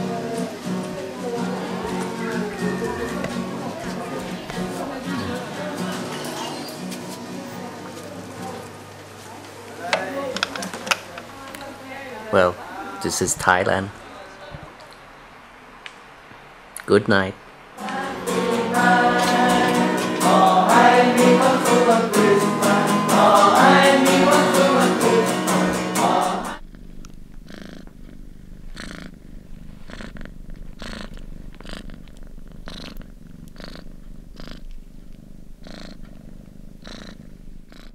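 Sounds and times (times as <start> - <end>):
cat purring: 0.0 - 8.7, 17.8 - 37.9
loud music with singing: 17.8 - 26.6.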